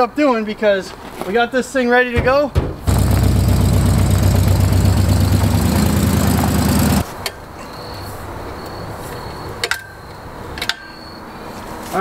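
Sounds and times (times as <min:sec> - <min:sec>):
truck engine running: 0:02.8 - 0:07.0
tires on gravel: 0:02.8 - 0:07.2.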